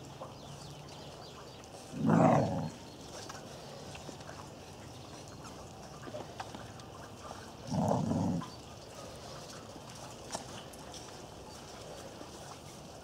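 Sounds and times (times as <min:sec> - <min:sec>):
dog growling: 0:01.9 - 0:02.8, 0:07.6 - 0:08.6.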